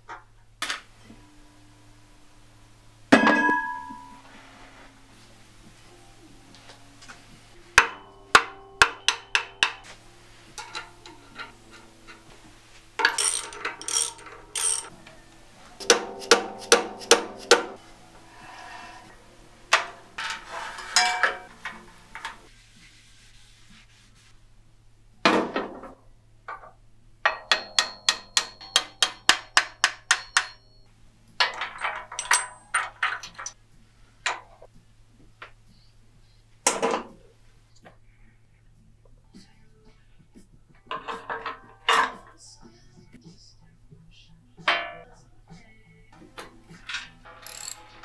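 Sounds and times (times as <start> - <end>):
hand tools tapping on metal: 6.5 - 15.2, 15.8 - 17.8, 19.7 - 22.5, 27.2 - 33.6, 46.2 - 48.0.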